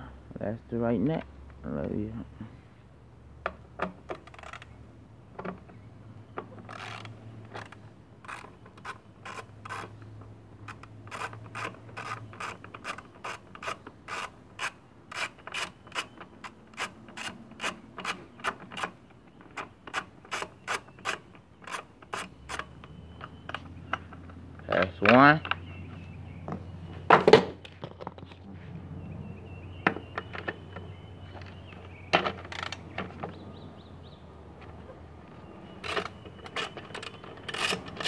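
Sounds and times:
hand ratchet clicking: 0:06.7 - 0:09.9.

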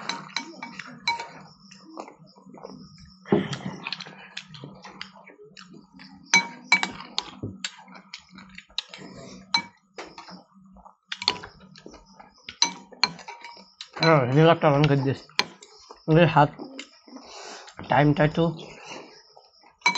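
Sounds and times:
spoons scraping glass bowls: 0:00.0 - 0:02.2, 0:06.1 - 0:10.4, 0:11.2 - 0:17.8, 0:18.7 - 0:19.9.

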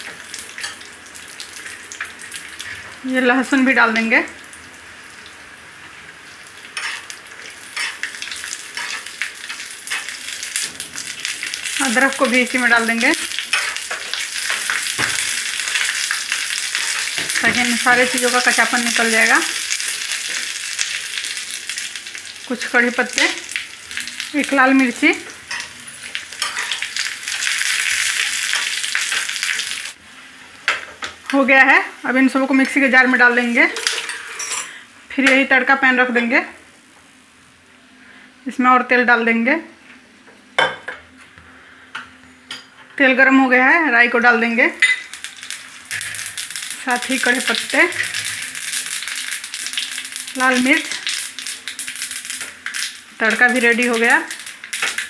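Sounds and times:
light sizzle in oil: 0:00.0 - 0:34.8, 0:44.5 - 0:55.0
steel spoon scraping a pan: 0:33.6 - 0:34.8.

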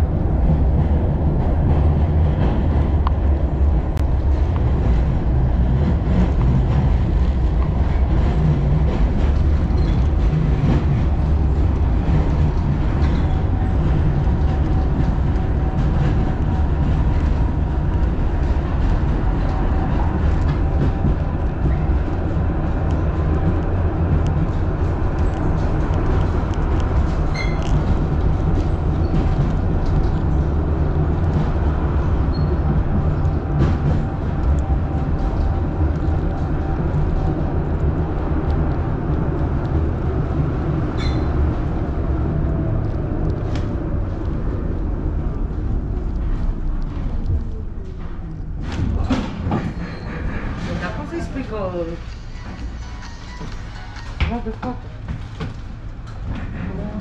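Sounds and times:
rail clicks: 0:00.0 - 0:57.0
tram wheels rumbling: 0:00.0 - 0:57.0.

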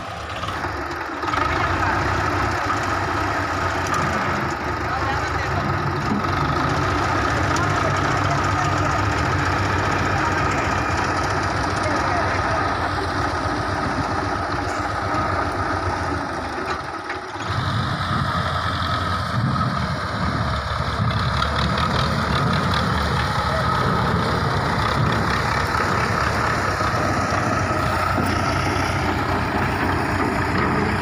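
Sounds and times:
low rumble of dragged trolley: 0:00.0 - 0:31.0
tractor engine running: 0:00.0 - 0:31.0.

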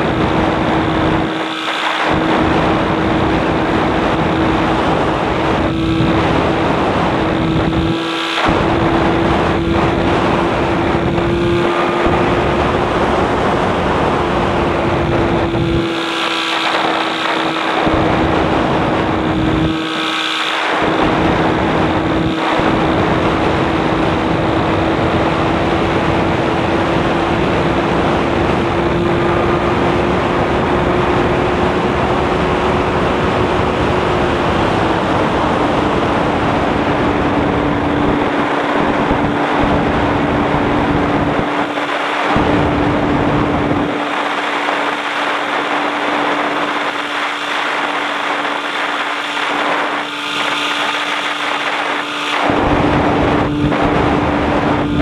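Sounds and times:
light aircraft engine droning: 0:00.0 - 0:55.0
rushing wind noise: 0:00.0 - 0:55.0.

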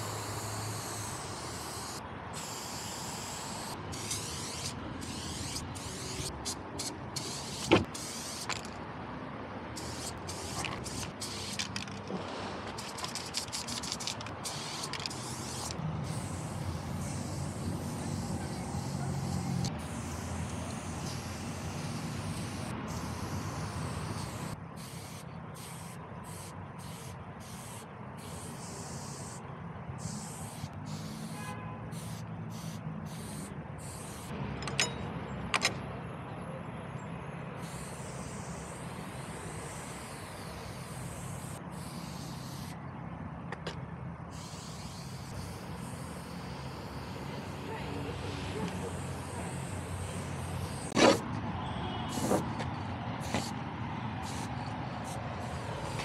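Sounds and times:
spray paint can hissing: 0:00.0 - 0:08.8, 0:09.8 - 0:12.0, 0:12.7 - 0:29.4, 0:30.0 - 0:34.3, 0:37.6 - 0:42.8, 0:44.3 - 0:51.2, 0:52.1 - 0:52.5, 0:53.2 - 0:53.6, 0:54.2 - 0:56.0
vehicle engine rumble: 0:03.5 - 0:25.6.

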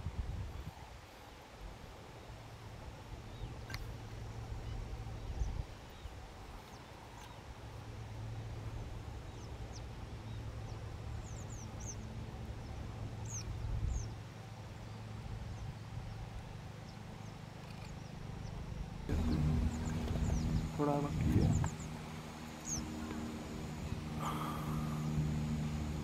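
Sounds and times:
small birds chirping: 0:03.2 - 0:07.6, 0:09.0 - 0:26.0
steady low hum: 0:07.3 - 0:26.0.

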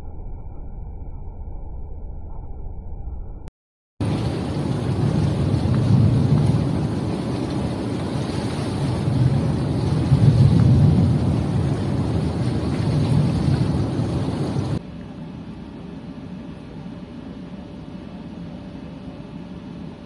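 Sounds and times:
wind noise: 0:04.0 - 0:14.8
boat engine rumbling: 0:04.0 - 0:19.8.

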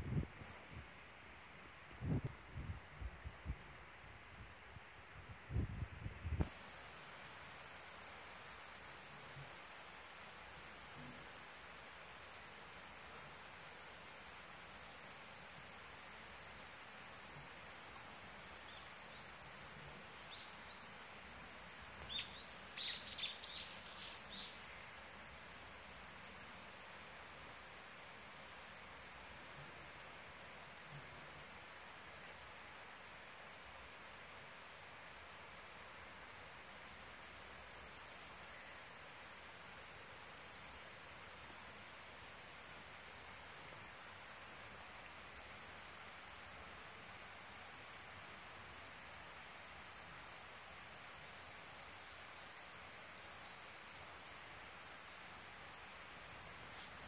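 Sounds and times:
insects droning in trees: 0:00.0 - 0:57.0.

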